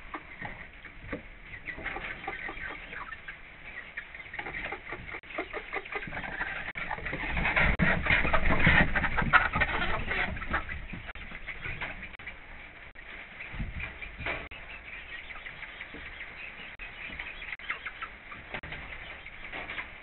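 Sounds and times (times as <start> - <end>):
chickens clucking softly: 0.0 - 20.0.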